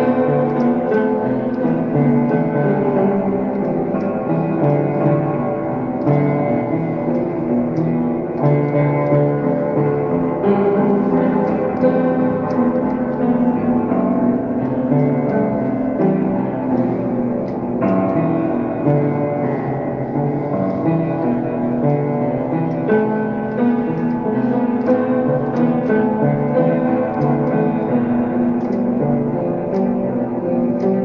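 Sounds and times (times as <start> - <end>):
instrumental music with held notes: 0.0 - 31.0.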